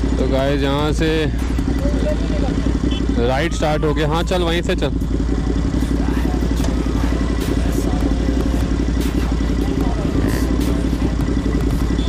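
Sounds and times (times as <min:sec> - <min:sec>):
motorcycle engine idling: 0:00.0 - 0:12.0
other motorcycles running: 0:00.0 - 0:12.0.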